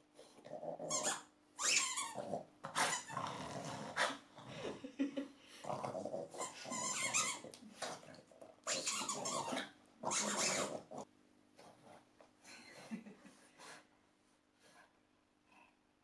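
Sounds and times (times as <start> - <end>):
dog playing with toy ball: 6.4 - 11.0.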